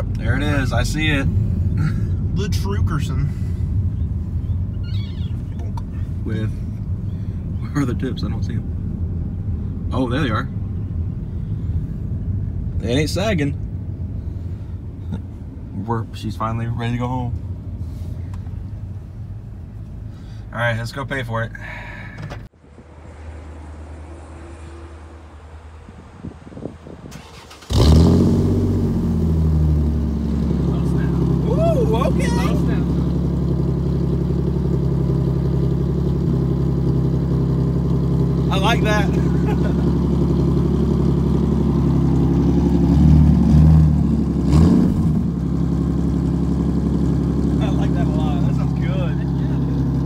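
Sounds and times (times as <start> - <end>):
car engine starting and idling: 0.0 - 24.5, 25.1 - 50.0
faint outdoor hum: 30.7 - 33.8.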